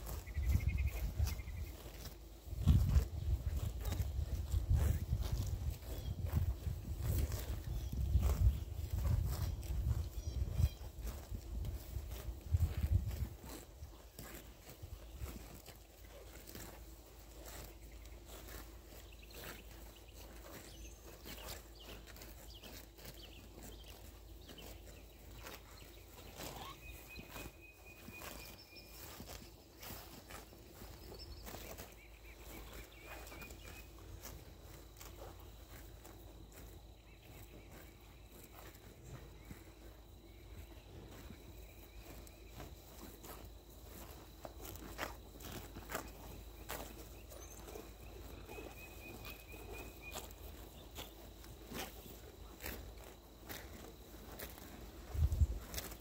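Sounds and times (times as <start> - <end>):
cattle tearing grass: 0.0 - 56.0.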